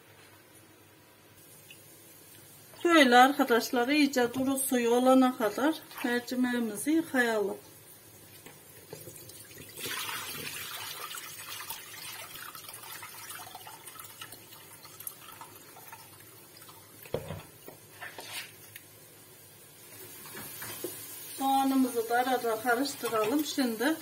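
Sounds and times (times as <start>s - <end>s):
water pouring into sink: 8.8s - 17.4s.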